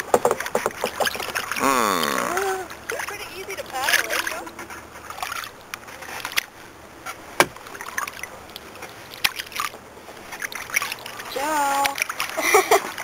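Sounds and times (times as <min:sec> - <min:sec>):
paddle knocks: 0:00.0 - 0:01.4, 0:07.3 - 0:07.7
water sloshing and dripping: 0:00.0 - 0:13.0.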